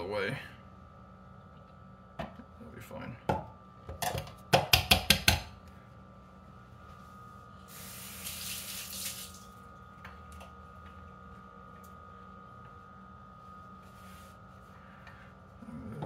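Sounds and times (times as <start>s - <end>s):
portafilter knocking on knock box: 3.3s - 5.5s.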